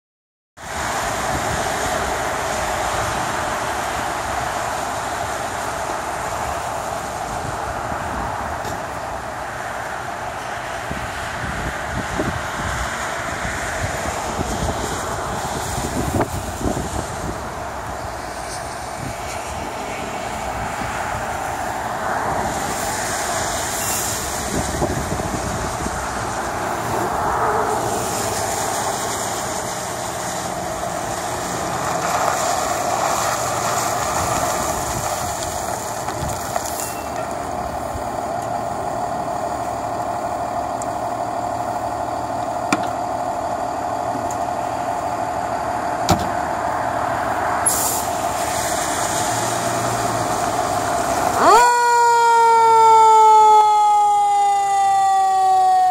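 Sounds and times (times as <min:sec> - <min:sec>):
diesel truck engine running: 0:00.6 - 0:55.9
air brake hisses: 0:23.7 - 0:24.3, 0:47.6 - 0:49.0
siren winding up: 0:51.4 - 0:55.9.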